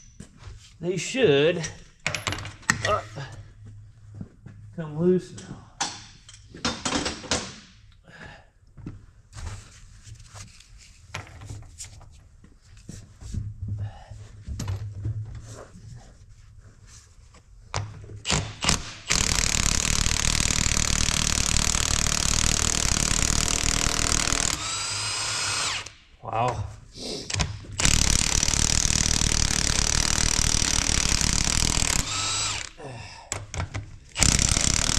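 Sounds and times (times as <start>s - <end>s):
tools clinking and knocking: 1.6s - 3.0s, 5.4s - 7.7s, 14.5s - 15.2s
impact wrench hammering: 17.8s - 26.0s, 27.3s - 32.7s, 33.4s - 34.9s.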